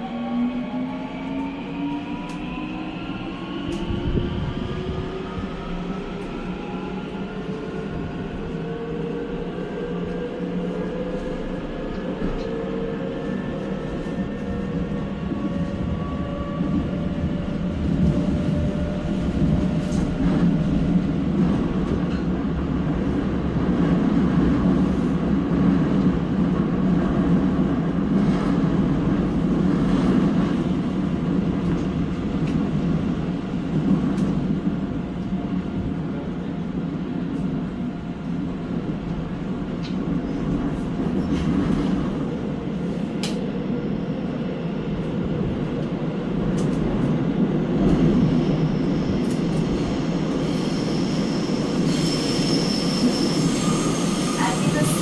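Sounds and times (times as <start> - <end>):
subway wheels rumbling on rail: 0.0 - 55.0.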